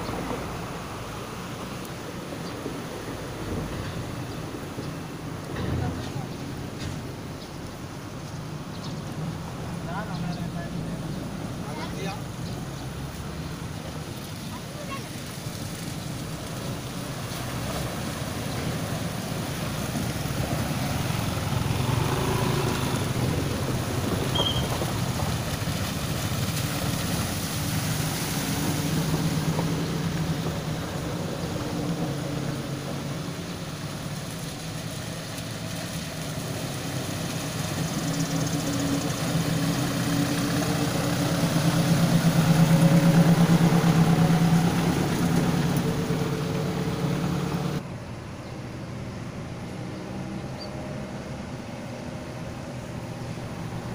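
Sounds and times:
tyres sloshing through water: 0:00.0 - 0:47.8
truck engine hum: 0:00.0 - 0:53.9
vehicle engines at low speed: 0:00.0 - 0:53.9.

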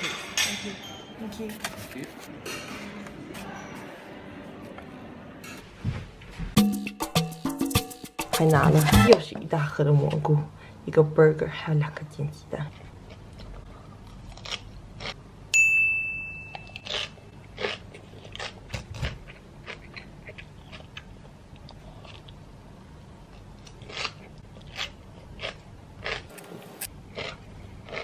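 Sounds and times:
chewing crunchy greens: 0:12.6 - 0:15.2, 0:16.8 - 0:22.4, 0:23.2 - 0:28.0
bright ding: 0:15.6 - 0:16.8.

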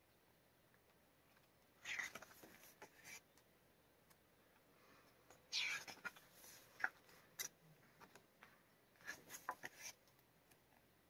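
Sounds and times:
soft paper rustles and taps: 0:05.9 - 0:10.0.

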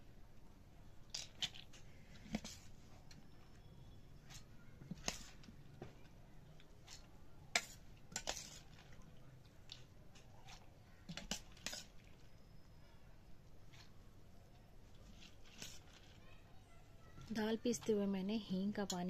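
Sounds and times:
spoon stirring wet lentils: 0:01.0 - 0:16.2.

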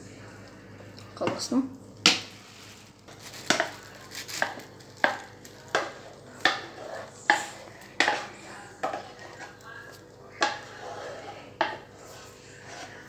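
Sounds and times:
wooden spoon knocking on pot: 0:03.5 - 0:03.8, 0:04.4 - 0:09.1, 0:10.4 - 0:10.7, 0:11.6 - 0:11.9.

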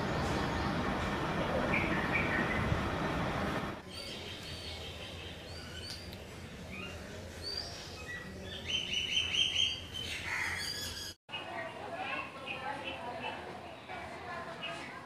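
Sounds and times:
background rushing noise: 0:00.0 - 0:03.8
small birds chirping: 0:03.8 - 0:15.0.

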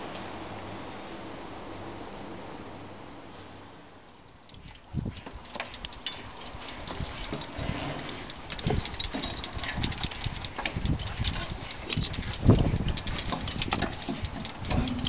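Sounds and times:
climbing a metal ladder: 0:04.5 - 0:15.0.

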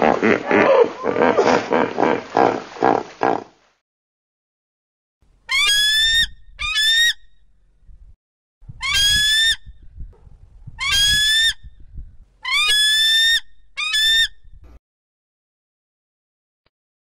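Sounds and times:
eagle whistled cries: 0:05.5 - 0:07.2, 0:08.8 - 0:09.6, 0:10.8 - 0:11.6, 0:12.4 - 0:14.4.

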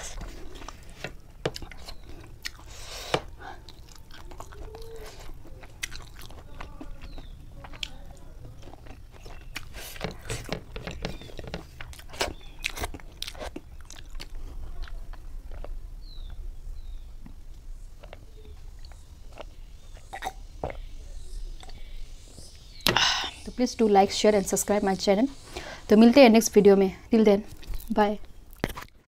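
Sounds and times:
person chewing and smacking: 0:00.0 - 0:20.9.

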